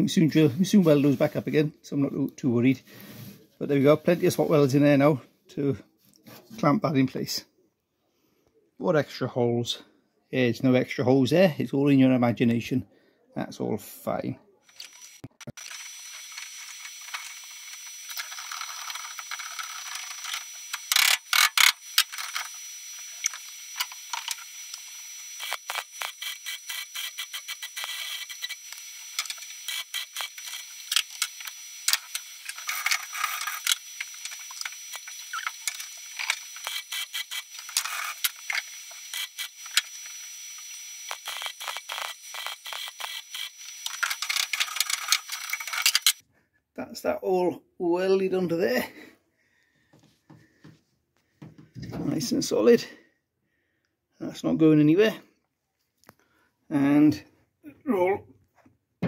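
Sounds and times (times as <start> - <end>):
welder crackling: 14.6 - 46.2
wire brush scrubbing metal: 18.1 - 40.2, 41.1 - 46.2.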